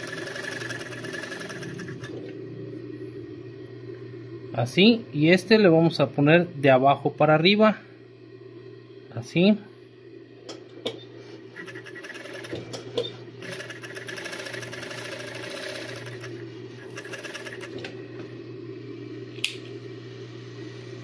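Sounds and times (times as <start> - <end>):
fast machine stitching: 0.0 - 2.2, 11.6 - 12.7, 13.4 - 17.9
sewing machine motor hum: 0.0 - 2.7, 11.4 - 18.3.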